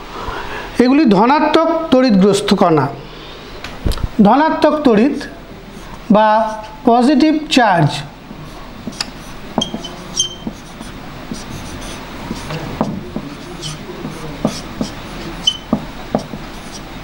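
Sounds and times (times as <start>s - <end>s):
marker scratching on whiteboard: 5.1s - 6.8s, 8.4s - 17.0s
marker squeaks: 8.8s - 16.9s.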